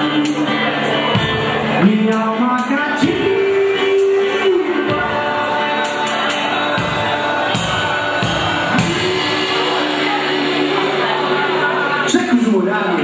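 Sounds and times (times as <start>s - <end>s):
drum kit: 0.0s - 13.0s
man singing into microphone: 0.0s - 13.0s.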